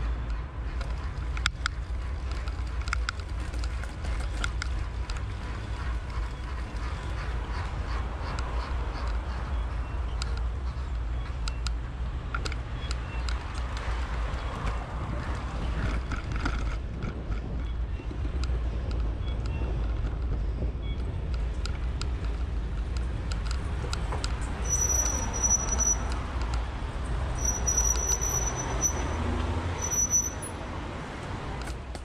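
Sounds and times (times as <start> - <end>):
traffic rumble: 0.0 - 32.0
high-pitched squeal: 24.6 - 26.2, 27.4 - 30.6.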